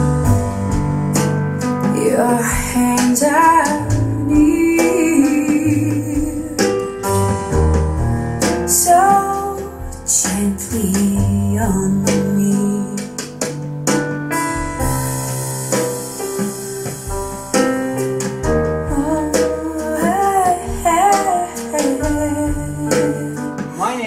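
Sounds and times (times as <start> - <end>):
piano notes: 0.0 - 24.0
person singing: 2.0 - 7.4.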